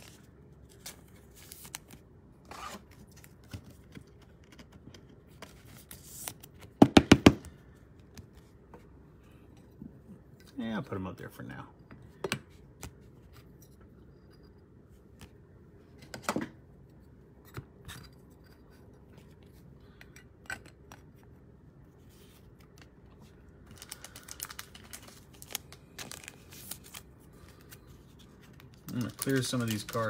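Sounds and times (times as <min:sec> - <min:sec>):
crackling card and plastic rubbing: 0:00.0 - 0:06.8, 0:22.0 - 0:30.0.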